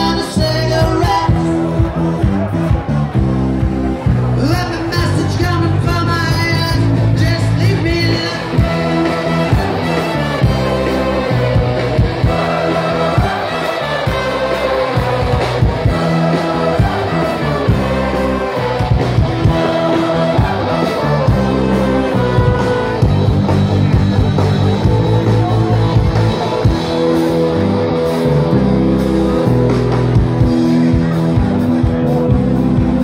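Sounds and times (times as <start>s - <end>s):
bass line: 0.0s - 33.0s
live band music with singing: 0.0s - 33.0s
drum beat: 8.5s - 27.1s.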